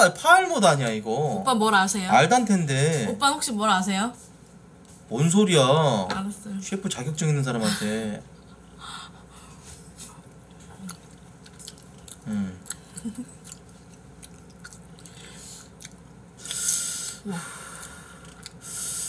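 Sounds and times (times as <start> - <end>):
soft chewing: 8.3 - 18.7.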